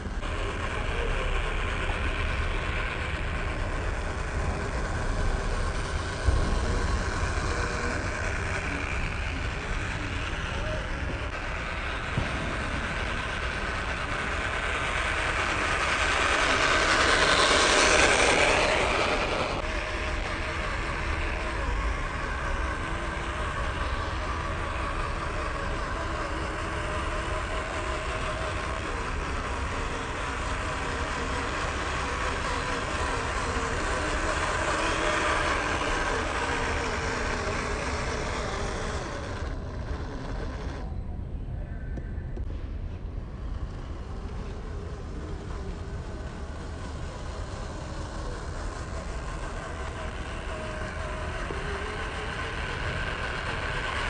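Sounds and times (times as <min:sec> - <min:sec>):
tyres rolling over dirt: 0:00.0 - 0:40.9
electric motor and gearbox whining: 0:00.0 - 0:42.6, 0:43.2 - 0:54.0.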